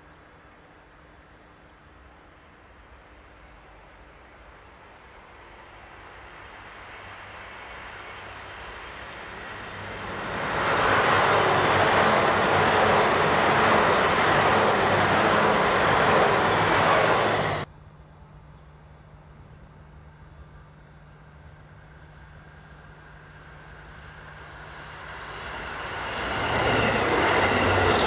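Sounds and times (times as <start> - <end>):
train engines passing: 0.0 - 28.0
train wheels on rails: 5.1 - 17.7, 22.0 - 28.0.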